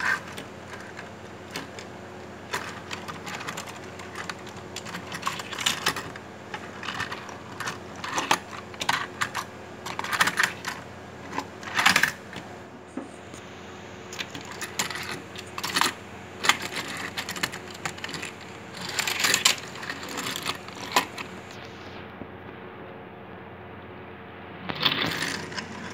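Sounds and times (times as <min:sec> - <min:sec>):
toy truck clicking and rattling: 0:00.0 - 0:01.9, 0:02.5 - 0:12.4, 0:14.1 - 0:21.5, 0:24.8 - 0:25.9.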